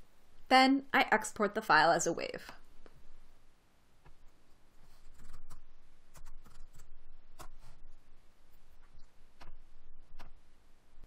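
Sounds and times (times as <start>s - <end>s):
computer keyboard and mouse clicks: 5.1s - 7.6s.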